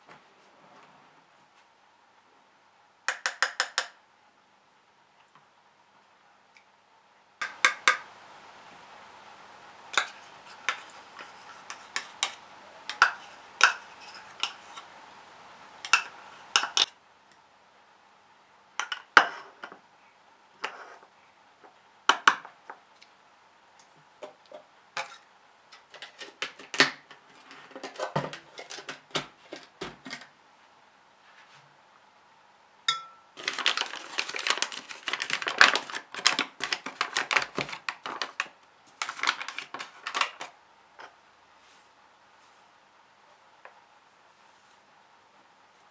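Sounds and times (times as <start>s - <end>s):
paper bag crinkling: 33.4s - 40.5s.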